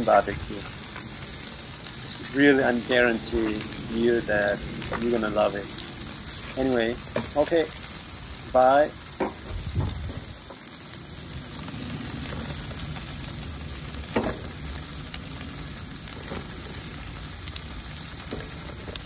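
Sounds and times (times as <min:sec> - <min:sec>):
meat sizzling on a grill: 0:00.0 - 0:19.0.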